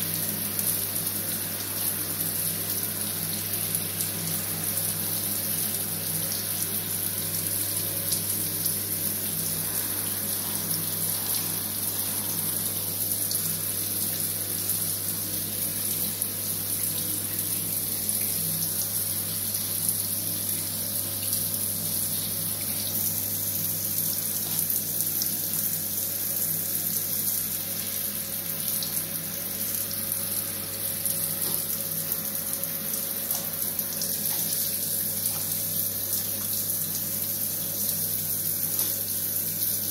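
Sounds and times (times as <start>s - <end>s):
shower water running on tiles: 0.0s - 39.9s.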